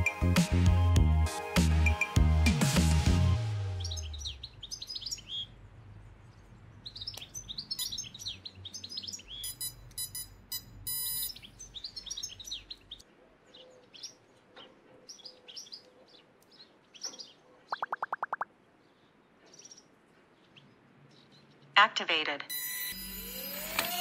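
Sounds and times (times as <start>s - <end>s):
birds chirping and twittering: 3.7s - 10.5s, 11.2s - 21.8s.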